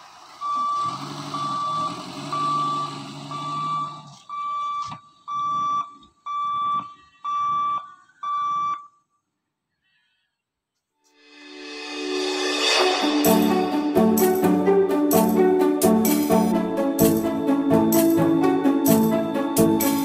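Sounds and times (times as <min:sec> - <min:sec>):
level crossing warning buzzer beeping: 0:00.4 - 0:09.0.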